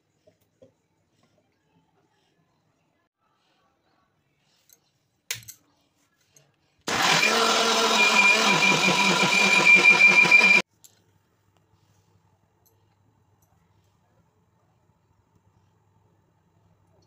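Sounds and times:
mixer grinder whining: 0:06.9 - 0:10.6.

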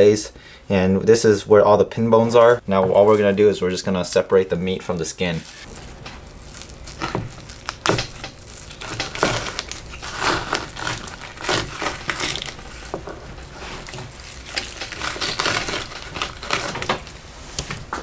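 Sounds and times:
knife scraping fish skin on board: 0:07.8 - 0:13.0, 0:13.6 - 0:17.0.

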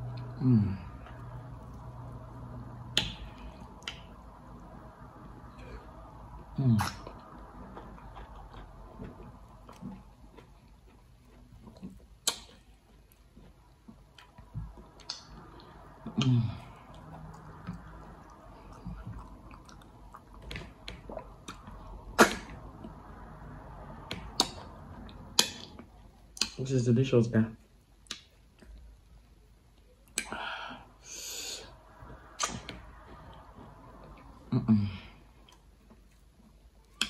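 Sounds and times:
person humming: 0:00.4 - 0:00.9
wet chewing and lip smacks: 0:01.0 - 0:23.4, 0:24.0 - 0:26.7, 0:27.6 - 0:30.4, 0:31.7 - 0:34.4.

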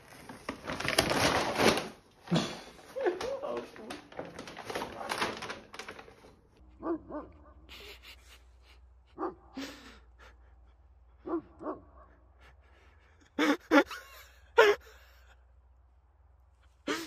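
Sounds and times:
dog barking: 0:06.8 - 0:07.7, 0:09.1 - 0:09.6, 0:11.2 - 0:12.2.

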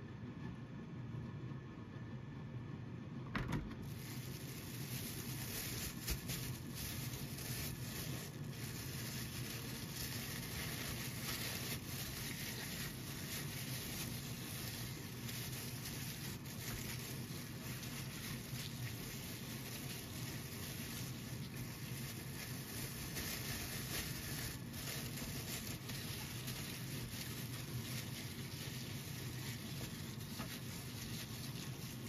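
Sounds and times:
plastic bag crinkling: 0:03.8 - 0:32.0.

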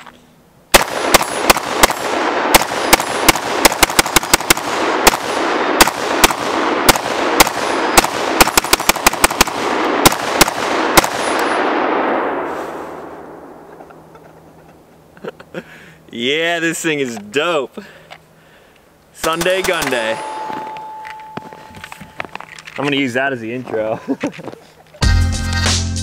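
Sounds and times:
rapid pistol gunshots: 0:00.7 - 0:12.4, 0:19.2 - 0:20.2
gunshot echo: 0:00.7 - 0:13.7, 0:19.2 - 0:21.6.

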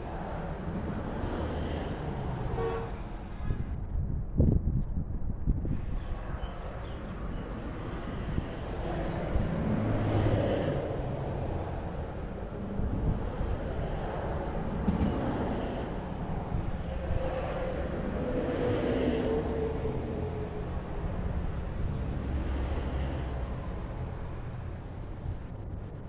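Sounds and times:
wind on microphone: 0:00.0 - 0:26.0
distant traffic rumble: 0:05.6 - 0:26.0.

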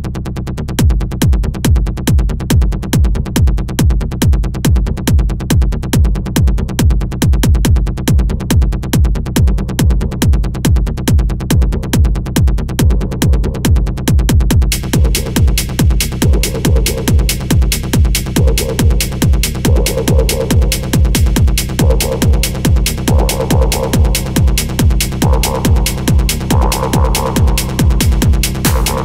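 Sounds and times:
heavy kick drum beat: 0:00.8 - 0:29.0
ticking hi-hats: 0:12.8 - 0:29.0
sustained synth tones: 0:14.9 - 0:29.0.

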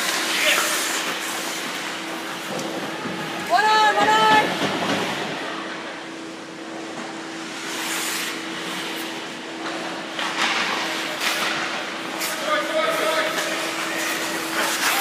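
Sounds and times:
skate blades scraping ice: 0:00.0 - 0:02.6, 0:07.4 - 0:15.0
person shouting: 0:03.5 - 0:04.4.

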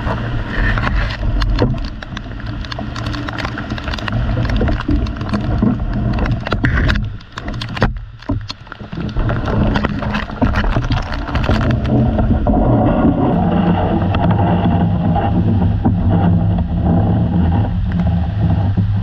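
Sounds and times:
wind buffeting microphone: 0:00.0 - 0:19.0
raindrops striking camera: 0:00.7 - 0:14.8.

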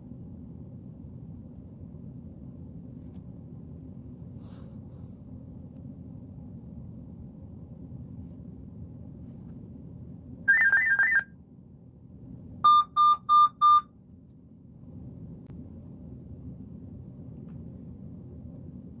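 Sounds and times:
warbling two-tone beep: 0:10.5 - 0:11.3, 0:12.7 - 0:13.8
short even beeps: 0:12.7 - 0:13.9.

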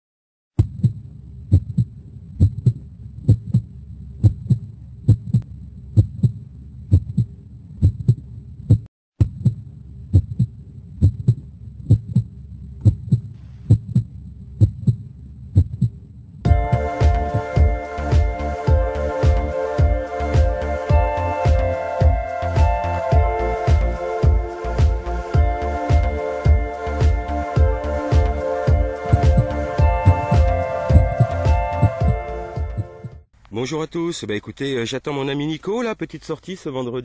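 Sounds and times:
heartbeat thumps: 0:00.6 - 0:33.3
music: 0:16.5 - 0:33.3.

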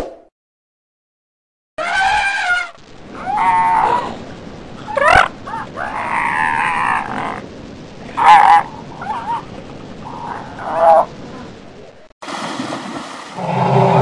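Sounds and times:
elephant trumpeting: 0:01.8 - 0:04.2, 0:08.1 - 0:09.5.

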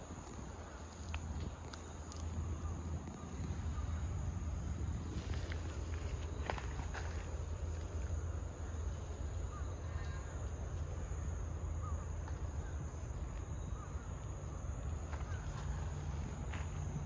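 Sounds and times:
steady low rumble: 0:00.0 - 0:17.0
faint bird calls: 0:08.6 - 0:16.8.

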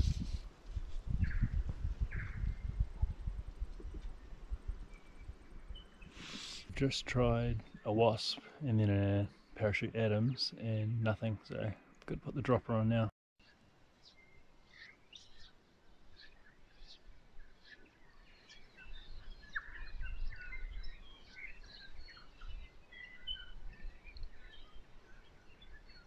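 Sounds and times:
birds chirping and whistling: 0:04.8 - 0:08.4, 0:14.7 - 0:26.0.

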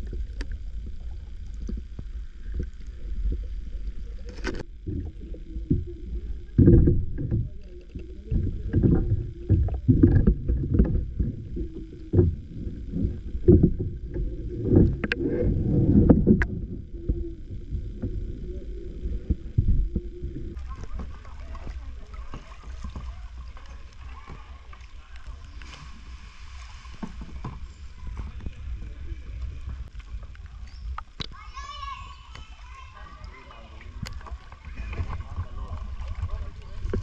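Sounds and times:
muffled underwater water rumbling: 0:00.0 - 0:37.0
underwater thuds and knocks: 0:04.3 - 0:18.4, 0:19.2 - 0:24.8, 0:26.9 - 0:29.0, 0:34.0 - 0:37.0.

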